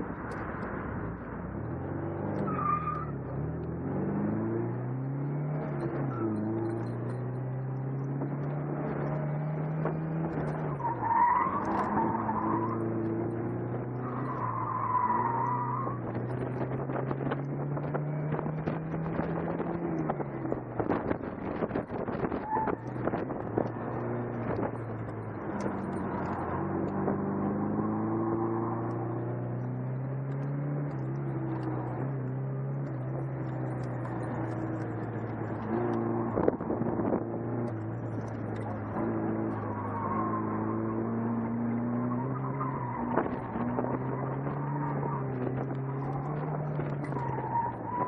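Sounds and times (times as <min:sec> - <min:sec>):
car engine revving: 0:00.0 - 0:48.0.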